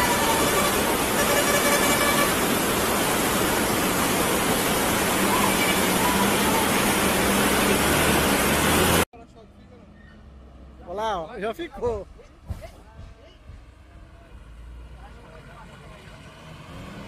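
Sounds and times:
bus engine running: 0.0s - 9.1s
floodwater rushing: 0.0s - 9.1s.

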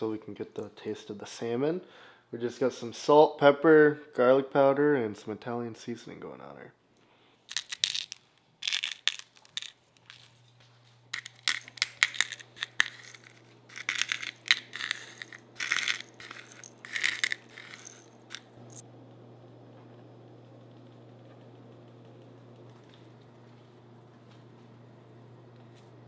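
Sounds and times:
spice shakers shaking: 7.5s - 10.5s, 11.1s - 18.8s.

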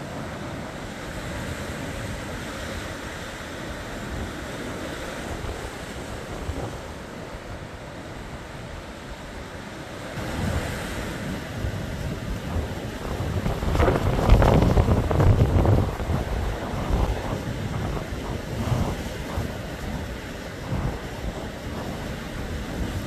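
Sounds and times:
wind buffeting microphone: 0.0s - 9.4s, 10.0s - 23.0s
sea surf breaking on rocks: 0.0s - 23.0s.

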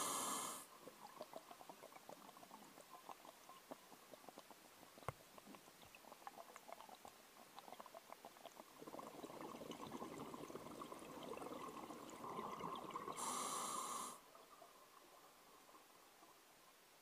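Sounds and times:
underwater exhaled bubbling: 0.0s - 15.8s
faint crackling and clicking: 0.7s - 13.2s.

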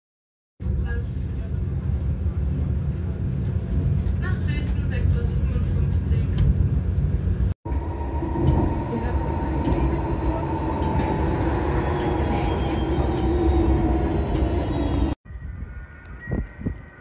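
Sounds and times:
rail car rumble and motor whine: 0.6s - 17.0s.

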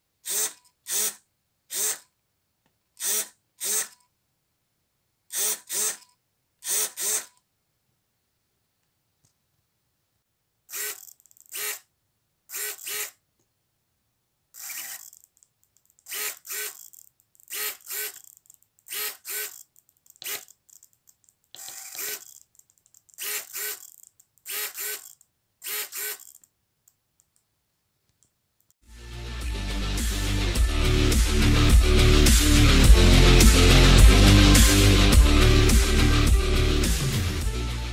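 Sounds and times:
servo motor whine and gear noise: 10.7s - 11.8s, 12.5s - 13.2s, 14.6s - 15.2s, 21.6s - 22.3s, 23.2s - 23.9s, 25.7s - 26.4s.

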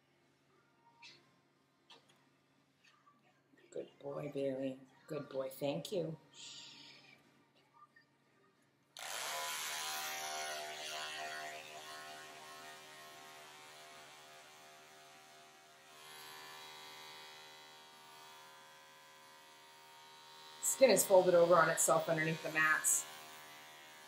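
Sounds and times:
electric clipper buzzing: 9.0s - 24.0s.

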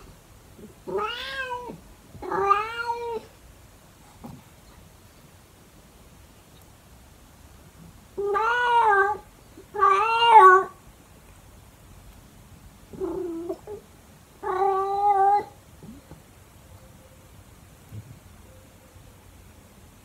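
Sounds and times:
cat yowling: 0.8s - 3.3s, 8.2s - 10.8s, 14.4s - 16.0s.

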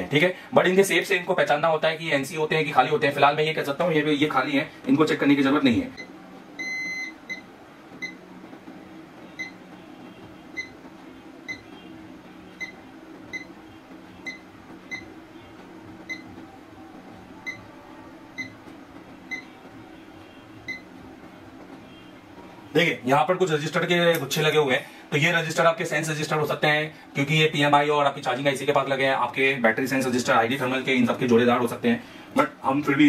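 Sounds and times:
multimeter beeping: 6.0s - 7.4s.

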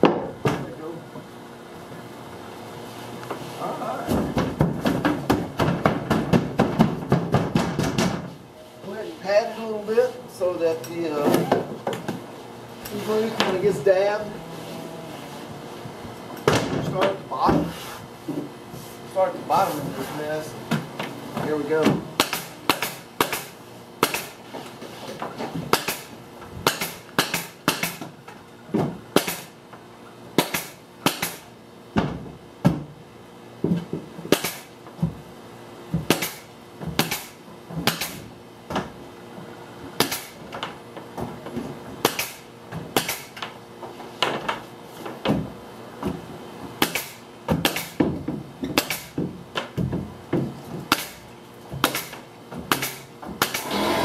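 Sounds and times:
staple gun firing into plywood: 46.8s - 48.0s, 51.8s - 53.8s.

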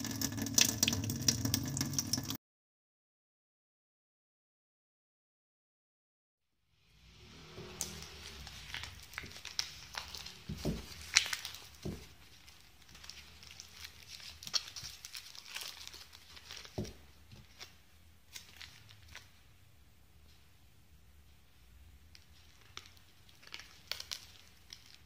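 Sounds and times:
foil paper wrapper crinkling: 7.8s - 19.4s, 22.1s - 25.0s.

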